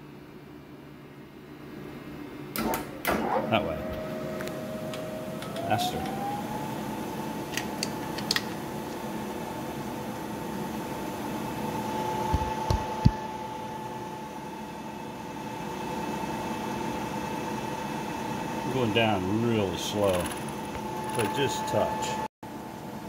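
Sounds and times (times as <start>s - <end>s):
milling machine spindle whine: 3.5s - 7.6s, 15.8s - 22.3s.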